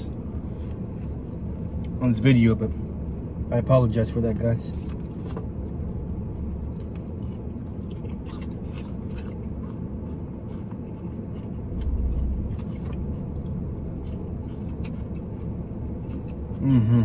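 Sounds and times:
low rumble inside car: 0.0 - 17.0
clicks and scrapes of eating: 6.6 - 16.6.

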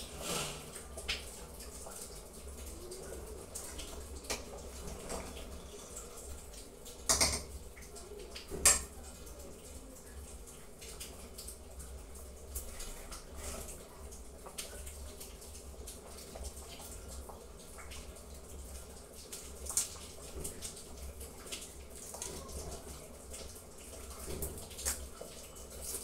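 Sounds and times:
simmering pot hiss: 0.0 - 26.0.

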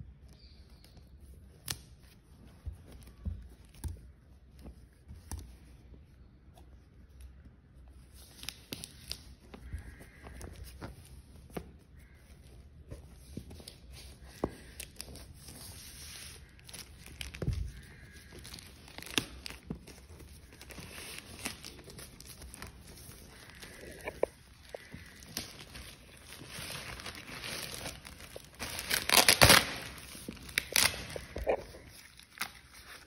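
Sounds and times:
plastic crinkling: 13.4 - 33.0
plastic mailer tearing: 23.4 - 33.0.

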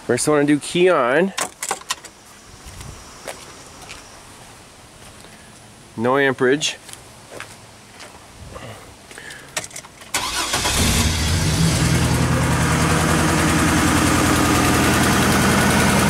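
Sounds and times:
car engine starting and idling: 10.1 - 16.0.

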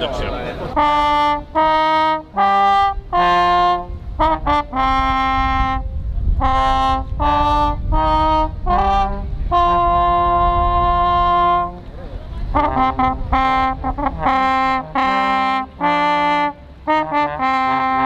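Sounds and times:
brass instrument melody: 0.6 - 18.0
low rumble: 4.9 - 14.7.

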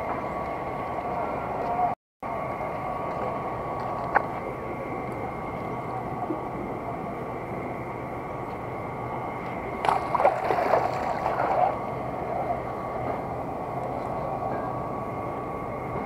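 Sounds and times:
steady hum: 0.0 - 16.0
water splashing off net: 9.8 - 11.7.

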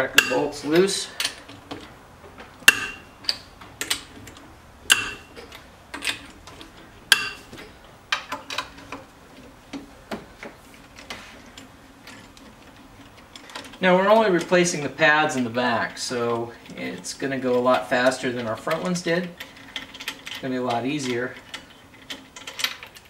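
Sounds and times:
wrench metallic clicks: 0.0 - 1.9, 2.6 - 7.4
loud ringing metal clinks: 2.7 - 3.4, 4.9 - 5.4.

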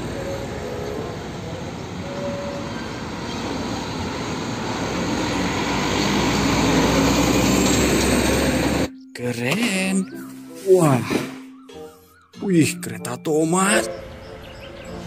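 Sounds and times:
diesel truck driving by: 0.0 - 9.0.

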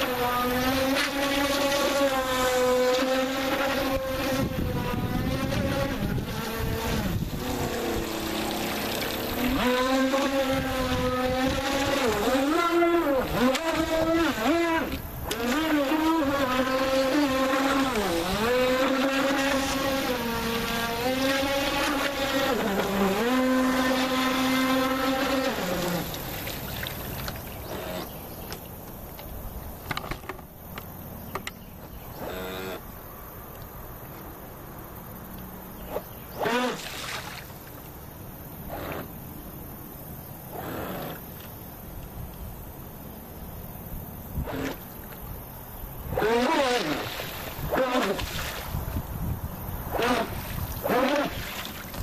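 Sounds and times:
electric motor whining: 0.0 - 28.6, 31.4 - 32.8, 46.0 - 52.0
water: 0.0 - 52.0.

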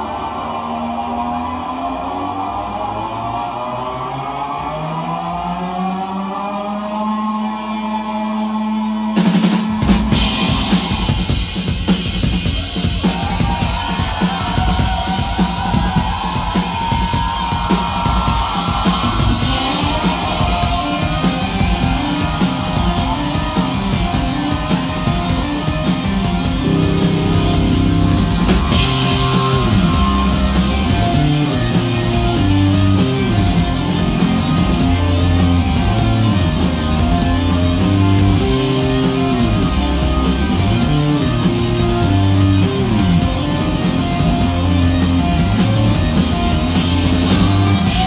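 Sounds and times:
keyboard: 0.0 - 48.0
drum kit: 9.0 - 48.0
electric guitar: 17.5 - 48.0.

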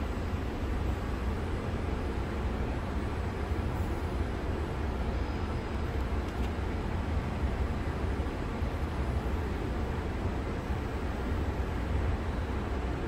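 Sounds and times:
train equipment hum and rumble: 0.0 - 13.0.

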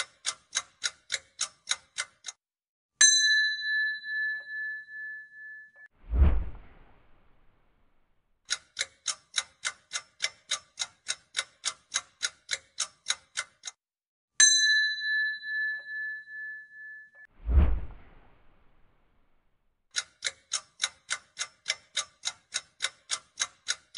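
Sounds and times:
countdown timer ticking: 0.0 - 2.4
bell-like ding: 3.0 - 5.9, 14.4 - 17.3.

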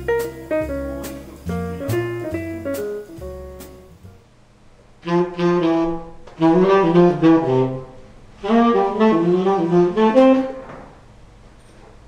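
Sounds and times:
tenor saxophone phrases: 5.0 - 10.6.

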